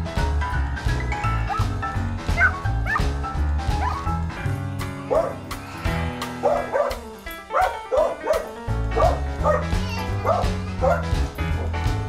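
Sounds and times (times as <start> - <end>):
background music with beat: 0.0 - 12.0
dog barking: 2.4 - 3.1, 5.1 - 5.4, 6.4 - 11.1.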